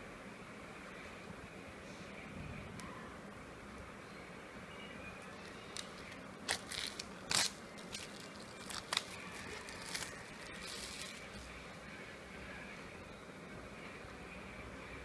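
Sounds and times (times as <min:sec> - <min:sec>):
plastic shrink-wrap tearing: 0:05.7 - 0:11.5.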